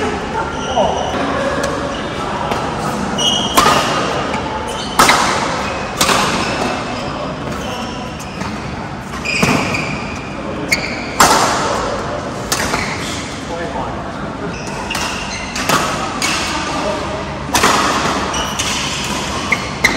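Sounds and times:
shoes squeaking on court: 0.4s - 1.2s, 1.8s - 11.2s, 14.4s - 16.0s, 17.9s - 19.9s
racket hitting shuttlecock: 2.5s - 7.8s, 8.4s - 10.0s, 10.7s - 13.1s, 14.8s - 19.9s.

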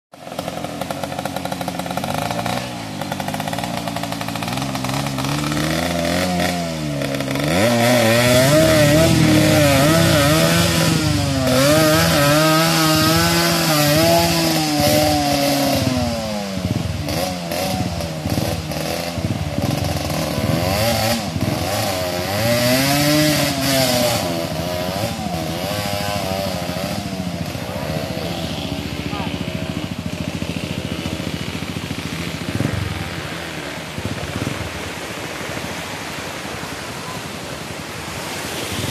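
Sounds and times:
dirt bike engine revving: 0.1s - 38.9s
rushing water and splashing: 29.7s - 38.9s.

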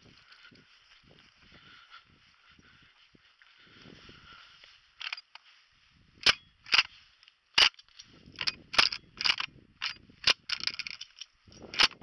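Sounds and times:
shotgun metal and wood clicks: 5.0s - 5.4s, 6.2s - 6.9s, 7.5s - 12.0s.

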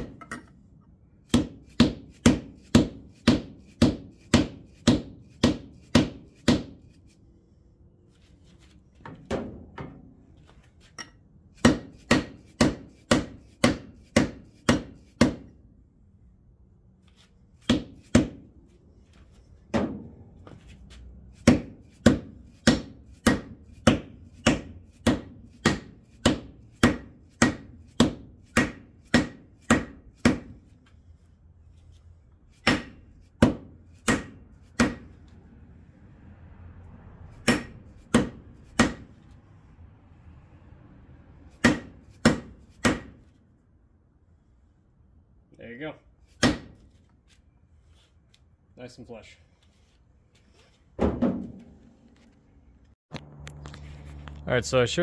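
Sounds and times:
hammer striking metal socket: 0.0s - 0.6s.

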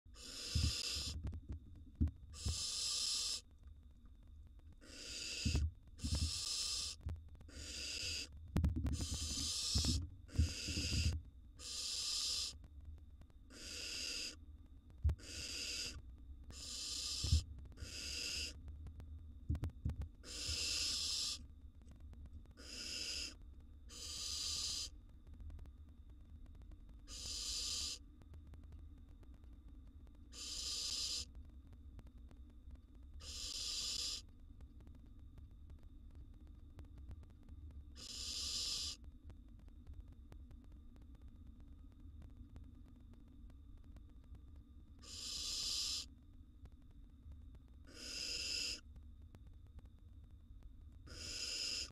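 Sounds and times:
low steady hum: 0.0s - 51.9s
owl nestlings hissing: 0.2s - 1.2s, 2.3s - 3.5s, 4.8s - 8.3s, 9.0s - 12.6s, 13.5s - 14.4s, 15.2s - 18.6s, 20.2s - 21.5s, 22.6s - 25.0s, 27.1s - 28.0s, 30.3s - 31.3s, 33.2s - 34.3s, 38.0s - 39.0s, 45.0s - 46.1s, 47.9s - 48.8s, 51.1s - 51.9s.

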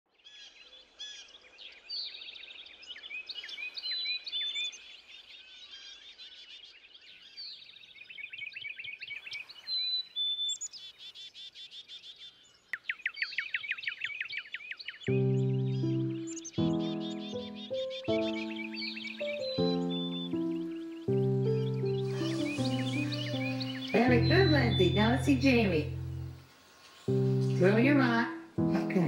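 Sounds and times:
songbirds singing: 0.2s - 29.0s.

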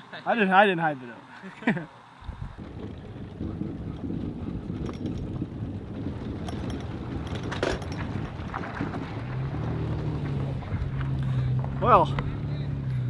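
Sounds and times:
low motor hum: 1.7s - 13.0s
wind rumbling on microphone: 2.2s - 11.8s.

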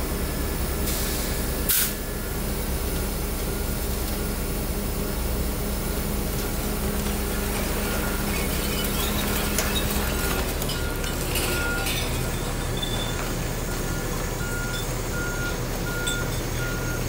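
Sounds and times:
garbage truck engine running: 0.0s - 17.0s
cans and bottles clinking: 7.0s - 13.9s.

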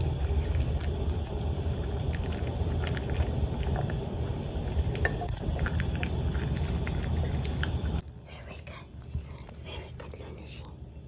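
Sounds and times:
puppy crunching food in metal bowl: 0.0s - 8.0s
low rumble: 0.0s - 11.0s.

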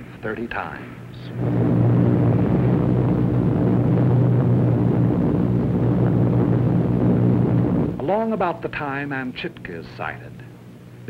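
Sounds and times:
propeller engines droning: 0.5s - 11.0s.

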